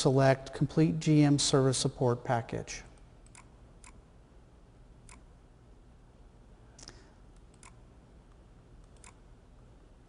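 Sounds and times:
low steady hum: 0.0 - 10.0
computer mouse clicks: 3.2 - 4.0, 6.8 - 7.8, 8.8 - 9.2.

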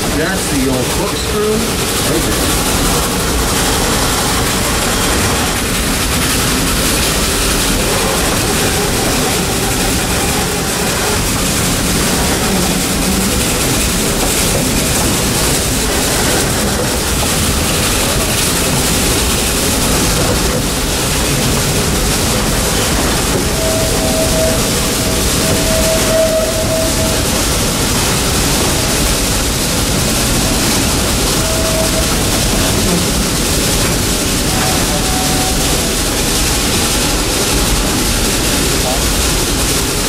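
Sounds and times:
train rumbling on rails: 0.0 - 40.0
steady tone: 21.3 - 35.0.

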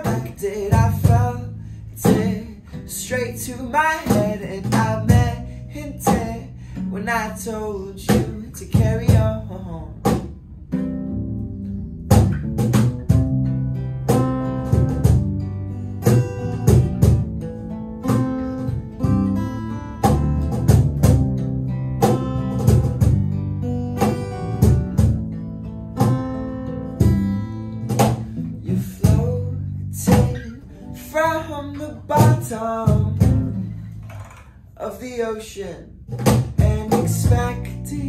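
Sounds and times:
cajon striking a steady beat: 0.0 - 6.5, 8.0 - 11.0, 11.9 - 30.6, 32.1 - 34.5, 36.1 - 38.0
bass guitar notes: 0.0 - 34.8, 35.9 - 38.0
strummed acoustic guitars: 0.0 - 38.0.

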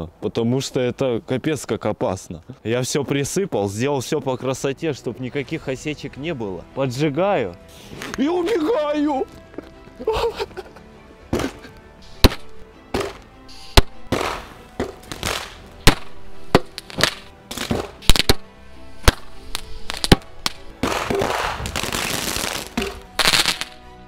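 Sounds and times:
firework bangs: 12.2 - 23.8
firework hissing whoosh: 13.5 - 14.5, 19.0 - 23.8.

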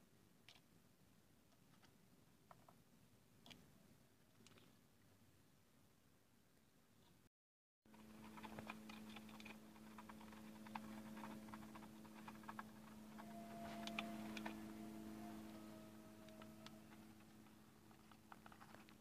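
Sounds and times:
ducklings pecking plastic dish: 7.9 - 14.6
steady low hum: 7.9 - 19.0.

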